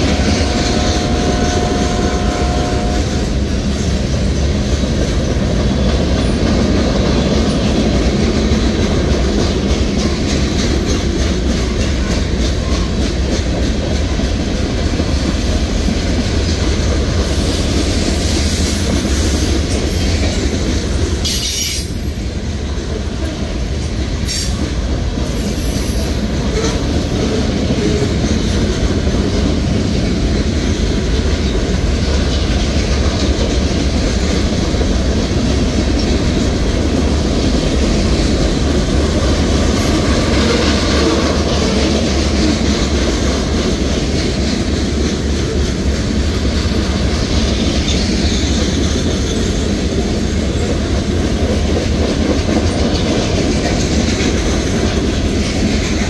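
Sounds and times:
steel wheels rumbling on rails: 0:00.0 - 0:56.0.

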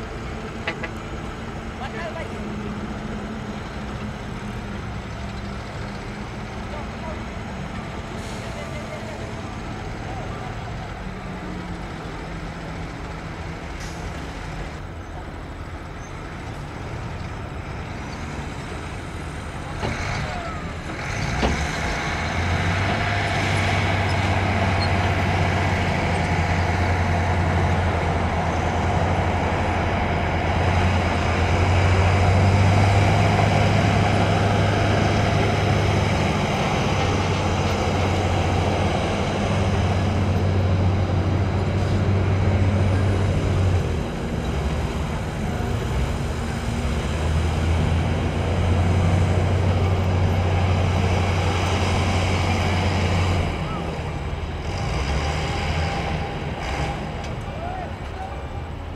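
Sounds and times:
heavy diesel engine humming: 0:00.0 - 0:58.9.

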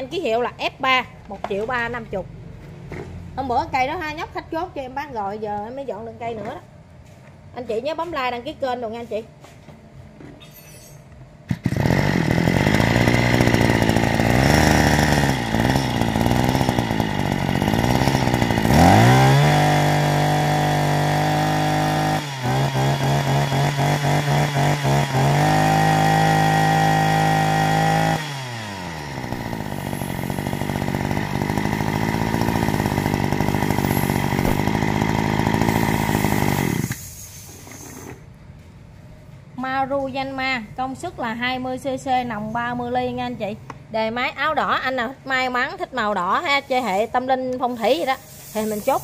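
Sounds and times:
brush cutter engine revving: 0:11.5 - 0:37.2.

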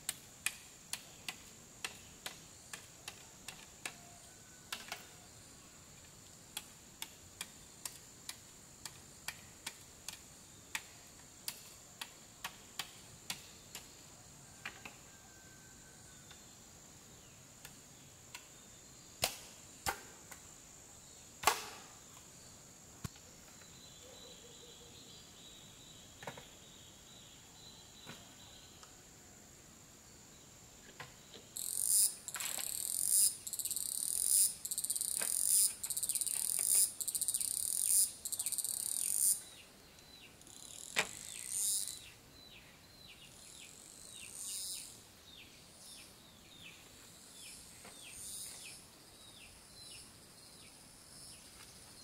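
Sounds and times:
high insect drone: 0:25.4 - 0:52.0.

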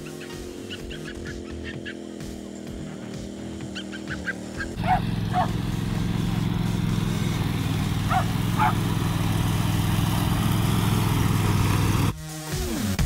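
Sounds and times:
riding mower engine running: 0:00.0 - 0:12.9
small dog barking: 0:04.6 - 0:05.6, 0:08.0 - 0:08.9.

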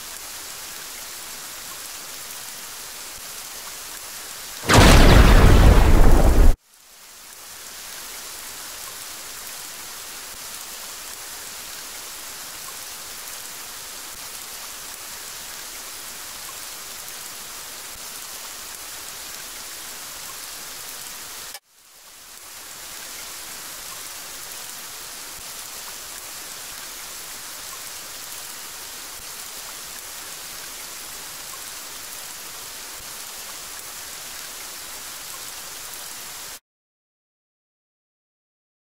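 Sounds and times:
steady rainfall: 0:00.0 - 0:36.6.

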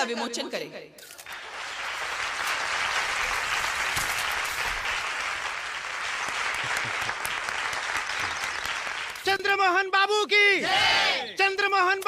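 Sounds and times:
crowd applauding: 0:01.2 - 0:09.4.

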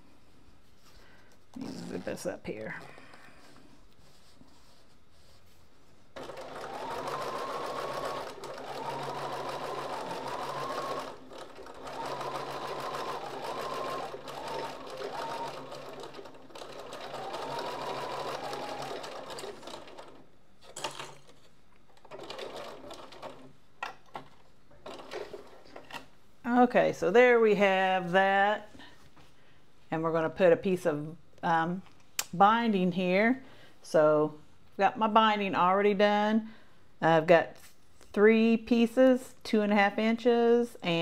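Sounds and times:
sewing machine motor whine: 0:06.2 - 0:20.2.

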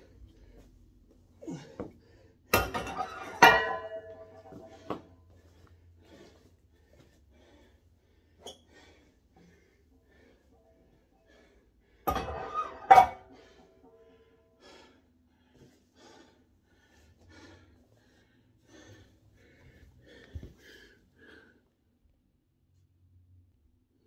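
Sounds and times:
heavy breathing: 0:00.0 - 0:02.5, 0:04.4 - 0:12.2, 0:13.2 - 0:21.8
metal clanks: 0:02.6 - 0:04.7, 0:12.1 - 0:13.4.

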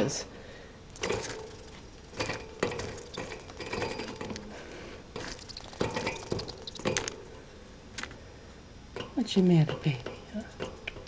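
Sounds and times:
clicks and rattles at wire cage: 0:01.0 - 0:04.5, 0:05.2 - 0:07.2.

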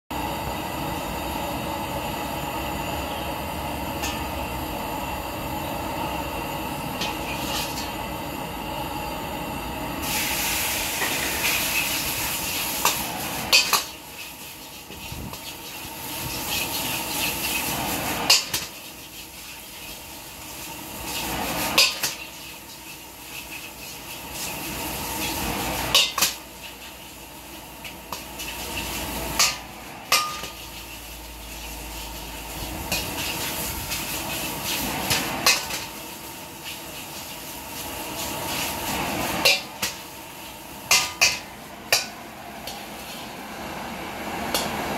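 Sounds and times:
stove roaring: 0:00.1 - 0:44.9
noodles sizzling in a wok: 0:00.2 - 0:44.9
metal ladle clanking on wok: 0:12.8 - 0:14.0, 0:18.3 - 0:18.8, 0:21.8 - 0:22.3, 0:25.9 - 0:26.4, 0:29.4 - 0:30.8, 0:35.1 - 0:35.9, 0:39.4 - 0:40.0, 0:40.9 - 0:42.8.

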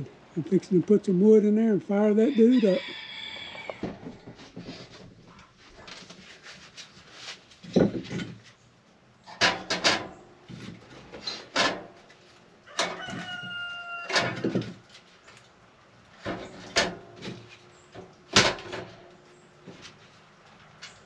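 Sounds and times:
firewood knocking against metal stove: 0:09.3 - 0:10.7.

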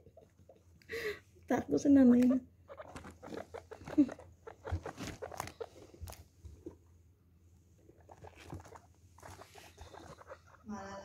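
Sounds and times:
guinea pigs scrabbling in pellets: 0:02.0 - 0:06.7, 0:07.9 - 0:10.7.

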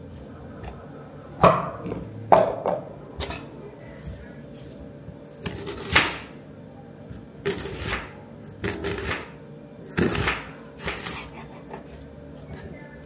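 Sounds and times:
knife crunching through onion: 0:07.4 - 0:09.3.

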